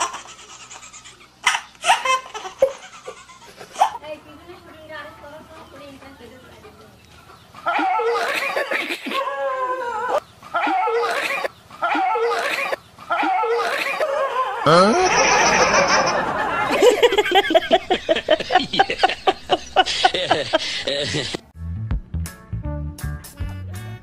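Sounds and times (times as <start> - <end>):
people laughing: 13.2 - 21.4.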